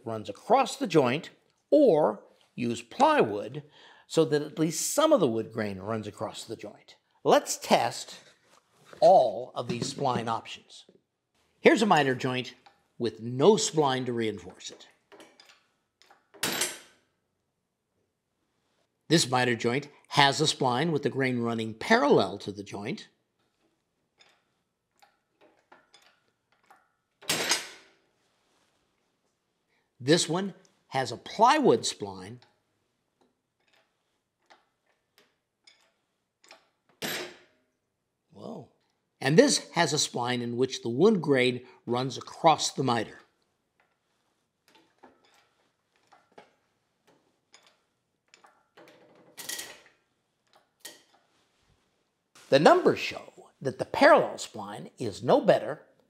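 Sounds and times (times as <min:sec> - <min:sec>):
wooden joint clicking and creaking: 0:23.4 - 0:28.0, 0:33.2 - 0:37.6.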